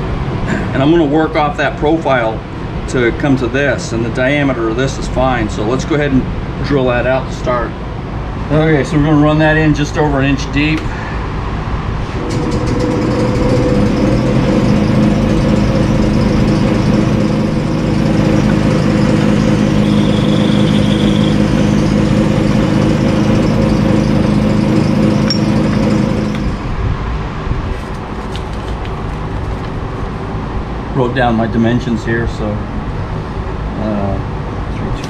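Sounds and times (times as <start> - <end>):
lathe running: 12.1 - 26.8
drill boring into plastic: 12.2 - 26.6.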